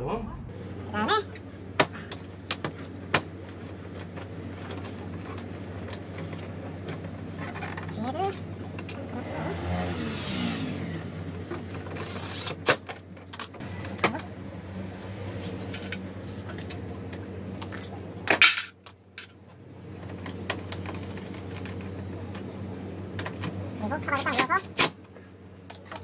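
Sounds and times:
steady low hum: 0:00.0 - 0:12.5.

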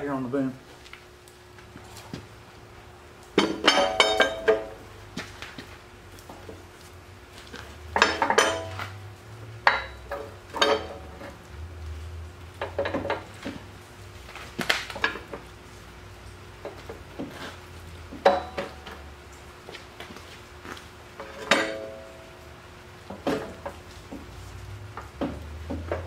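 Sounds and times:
steel parts clanking: 0:03.4 - 0:04.8, 0:08.0 - 0:09.0, 0:09.6 - 0:11.4, 0:21.2 - 0:22.2.

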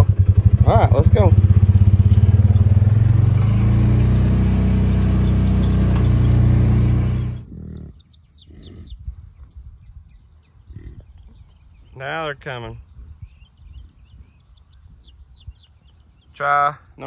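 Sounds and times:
vehicle engine running: 0:00.0 - 0:07.5
birds chirping: 0:00.0 - 0:17.0.

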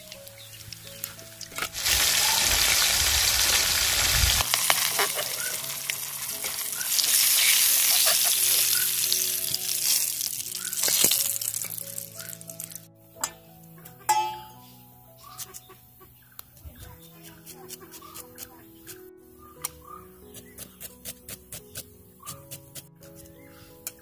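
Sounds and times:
fish sizzling in hot oil: 0:00.0 - 0:12.8.

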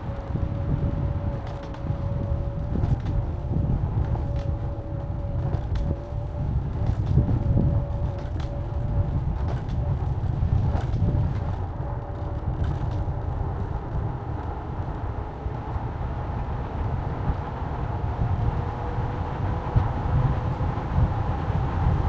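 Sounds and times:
vehicle low rumble: 0:00.0 - 0:22.0.

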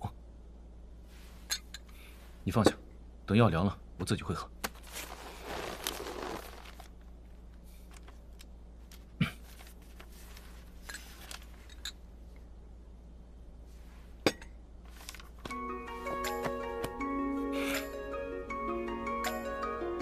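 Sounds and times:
steady low hum: 0:00.0 - 0:20.0
soft rustle: 0:01.0 - 0:02.5, 0:04.7 - 0:12.4, 0:13.6 - 0:14.2, 0:14.8 - 0:15.5.

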